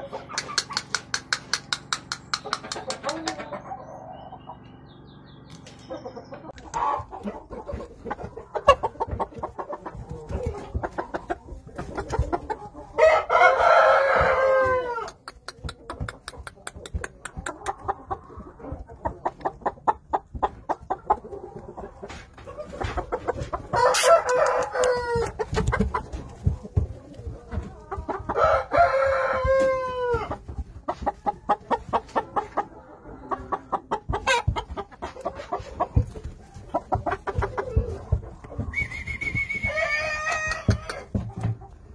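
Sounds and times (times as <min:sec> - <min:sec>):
rooster crowing: 0:13.0 - 0:15.2, 0:23.7 - 0:25.4, 0:28.3 - 0:30.3, 0:38.8 - 0:41.2.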